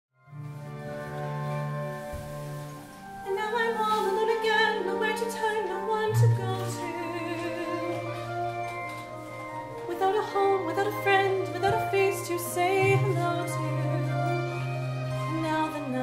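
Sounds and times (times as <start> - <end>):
held accompaniment chords: 0.3 - 16.0
woman singing with vibrato: 3.2 - 8.3, 9.8 - 16.0.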